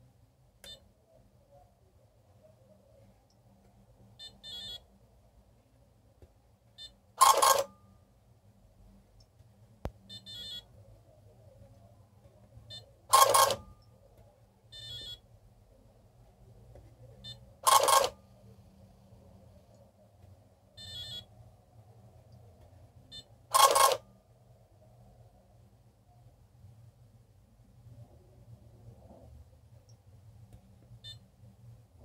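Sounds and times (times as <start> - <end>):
short electronic beeps: 4.2 - 4.8, 20.8 - 21.3.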